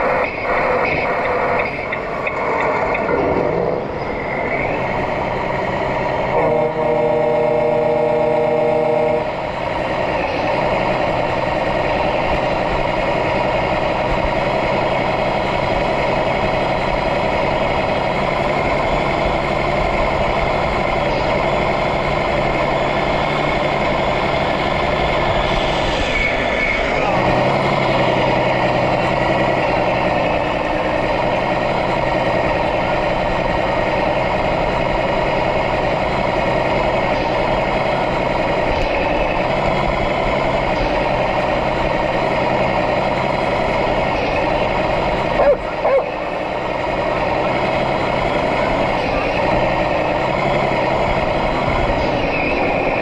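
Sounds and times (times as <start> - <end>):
simulated diesel truck engine: 0.0 - 53.0
held electronic tone: 6.2 - 9.5.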